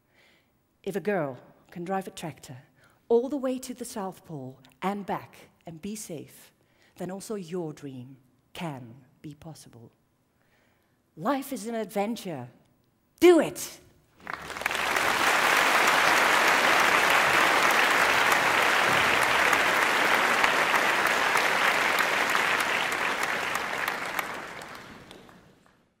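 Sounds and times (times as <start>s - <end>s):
audience applauding: 14.2s - 25.9s.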